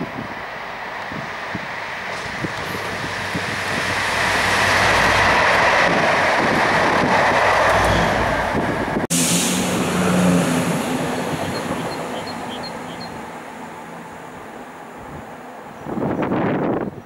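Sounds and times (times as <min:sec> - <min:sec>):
diesel locomotive engine: 0:00.0 - 0:17.0
train coaches and wheels rushing by: 0:00.0 - 0:17.0.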